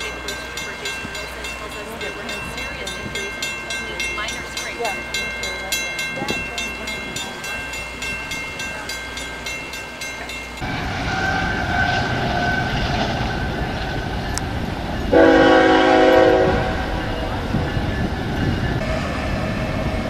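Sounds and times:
loud horn chord: 15.1 - 17.0.

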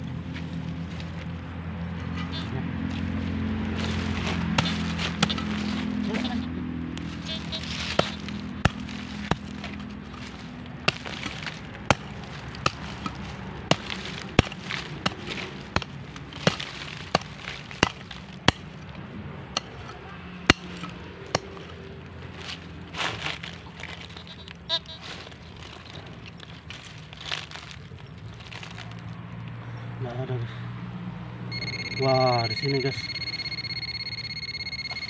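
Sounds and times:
hand hoe chopping soil: 3.7 - 6.3, 7.0 - 18.8, 19.6 - 21.8.

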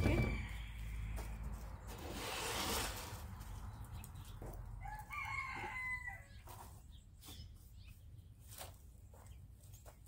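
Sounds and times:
rooster crowing: 0.0 - 1.6, 4.8 - 6.4.

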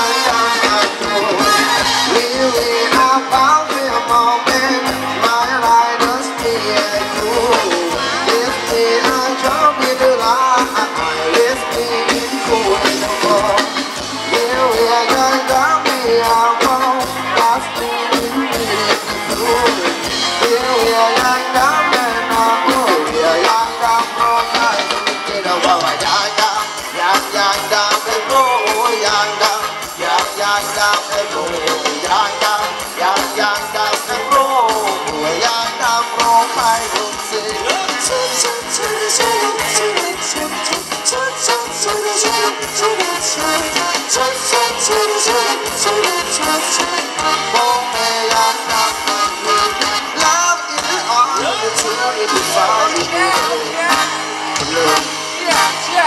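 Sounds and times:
person singing: 0.0 - 56.0
steady drum beat: 0.0 - 56.0
wavering melody line: 28.1 - 29.7.

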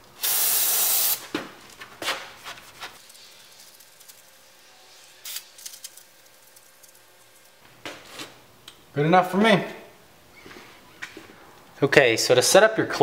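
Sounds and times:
aerosol spray hiss: 0.2 - 1.2.

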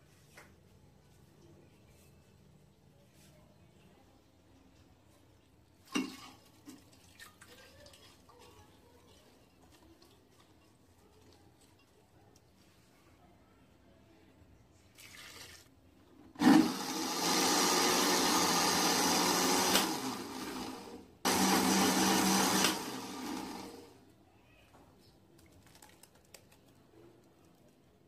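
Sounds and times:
electric blender running: 16.4 - 24.0.

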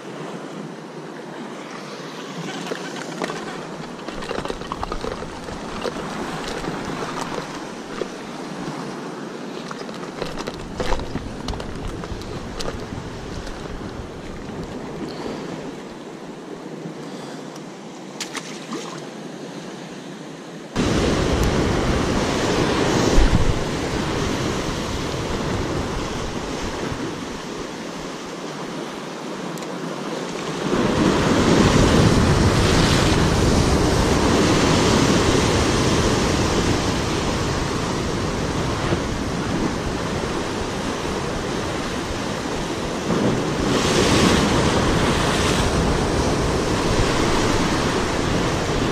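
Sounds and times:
surf breaking over rocks: 1.5 - 15.0, 30.2 - 48.9
wind buffeting microphone: 2.6 - 15.5, 20.8 - 27.8, 30.6 - 48.9.

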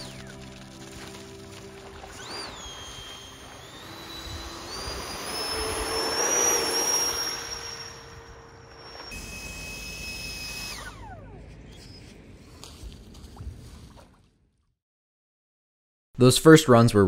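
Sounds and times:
electric ducted fan whining: 1.6 - 12.4.

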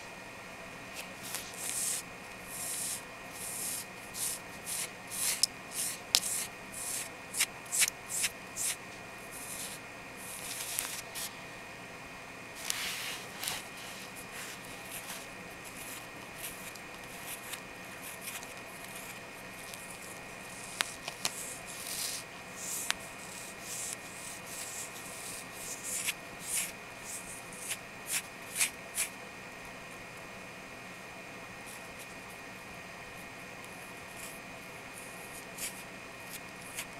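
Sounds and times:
fingernails scratching skin: 1.3 - 8.8.

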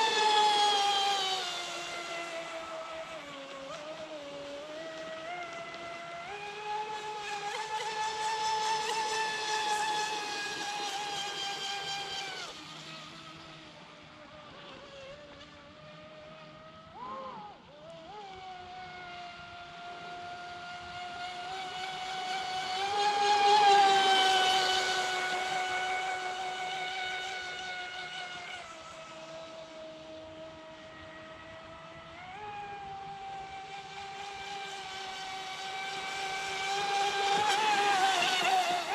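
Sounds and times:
electric boat motor whining: 0.0 - 38.9.

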